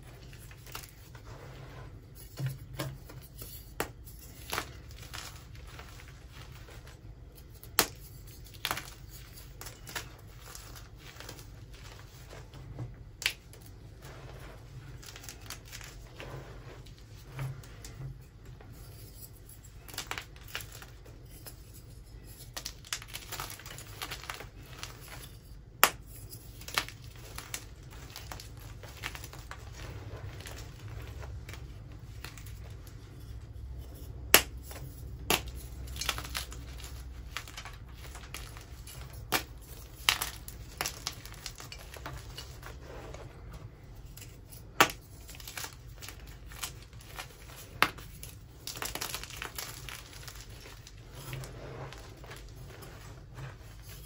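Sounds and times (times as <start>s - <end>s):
hands crunching chalk blocks: 0.0s - 18.0s, 18.8s - 54.0s
chalk pieces snapping: 3.0s - 11.5s, 19.7s - 32.7s, 33.9s - 42.7s, 44.1s - 51.3s.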